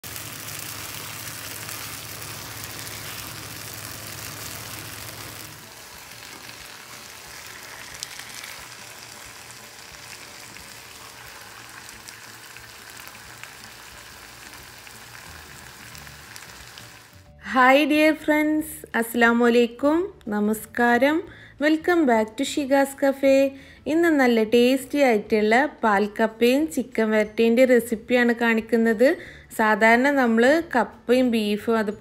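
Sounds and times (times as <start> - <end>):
food sizzling in a pan: 0.0 - 17.3.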